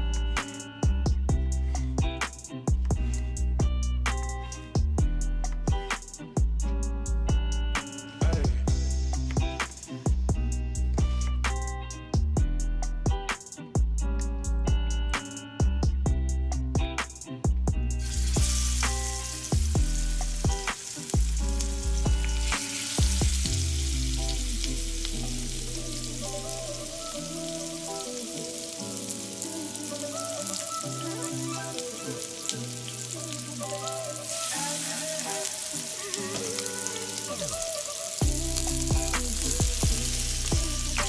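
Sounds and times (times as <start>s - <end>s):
chicken sizzling in hot oil: 18.0s - 41.0s.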